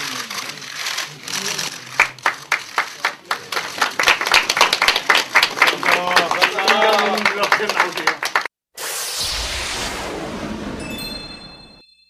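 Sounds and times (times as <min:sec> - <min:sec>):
people clapping: 0:00.0 - 0:08.5.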